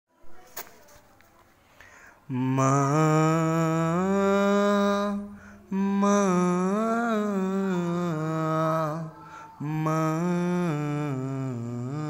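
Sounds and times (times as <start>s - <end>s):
man singing unaccompanied: 2.3s - 12.0s.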